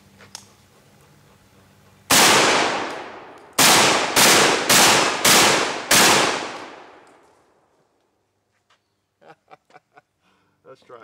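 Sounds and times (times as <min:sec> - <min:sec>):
shotgun shots: 0:02.1 - 0:07.2.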